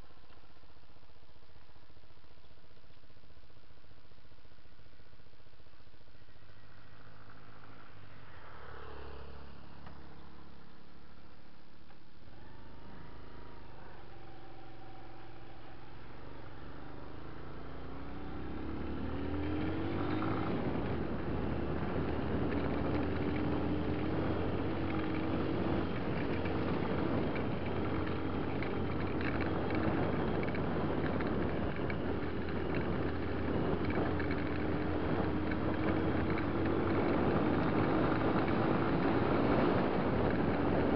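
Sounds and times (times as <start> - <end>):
wind: 0.0 - 40.9
dirt bike engine: 6.1 - 40.9
tyres rumbling on gravel: 18.7 - 40.9.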